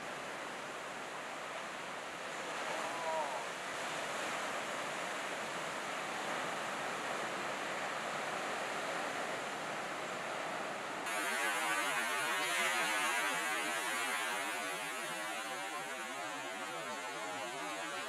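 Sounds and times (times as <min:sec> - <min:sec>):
ocean surf breaking: 0:11.1 - 0:18.0.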